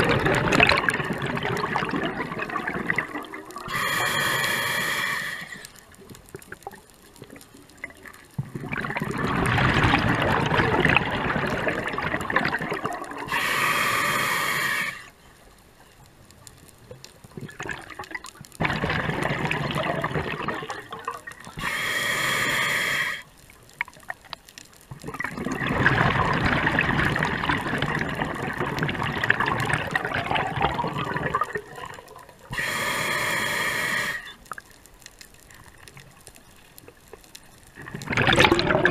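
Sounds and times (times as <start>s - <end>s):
bubbling underwater exhalations: 0.0s - 4.3s, 6.6s - 13.5s, 17.4s - 21.8s, 25.0s - 32.7s, 37.8s - 38.9s
regulator hissing inhale: 3.7s - 5.8s, 13.3s - 15.2s, 21.6s - 23.3s, 32.5s - 34.4s.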